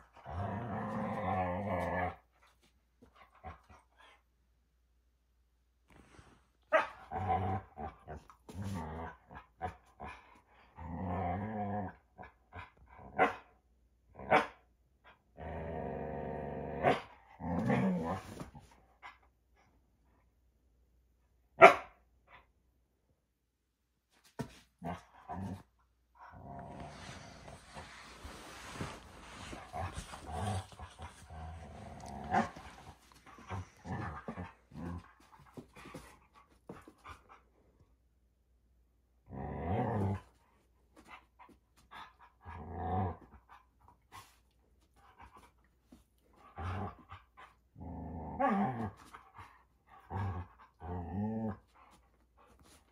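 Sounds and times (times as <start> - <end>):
dog play-growling: 0.0 - 4.1, 6.9 - 13.2, 15.3 - 19.2, 24.3 - 37.4, 39.2 - 52.9
dog growling: 0.2 - 2.2, 26.2 - 35.4
dog barking sharply: 21.6 - 21.9.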